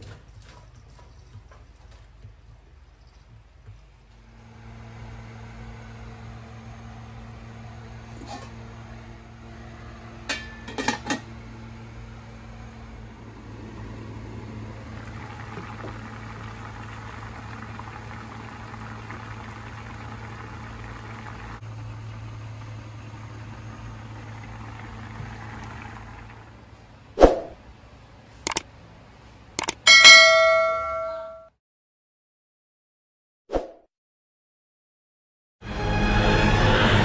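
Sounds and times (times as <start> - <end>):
steady low hum: 0.0 - 31.4
broth boiling in a wok: 4.2 - 26.8
short sharp clicks: 29.6 - 29.8.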